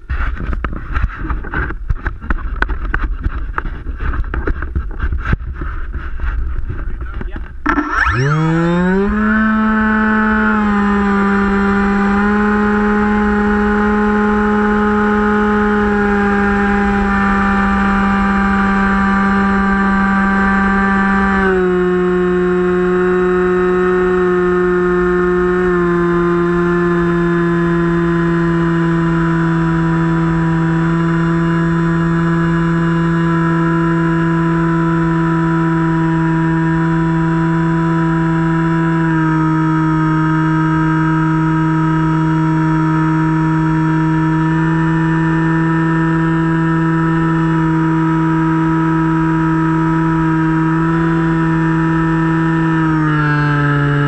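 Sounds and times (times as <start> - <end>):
wind noise on microphone: 0.0 - 30.3
model plane motor and propeller: 0.0 - 54.0.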